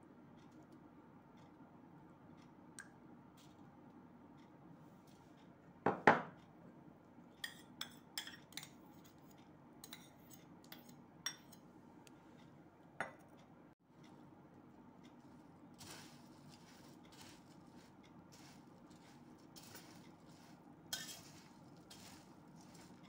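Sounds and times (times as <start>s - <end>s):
metal spoon clinking on steel dishes: 7.4s - 8.8s, 9.8s - 11.6s, 18.4s - 23.0s.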